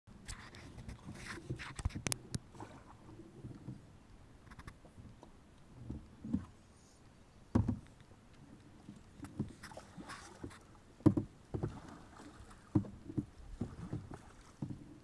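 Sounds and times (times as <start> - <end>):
sharp clicks of boat handling: 0.2 - 6.6, 7.5 - 11.8, 12.4 - 15.0
paddle knocking on hull: 7.5 - 7.9, 9.2 - 15.0.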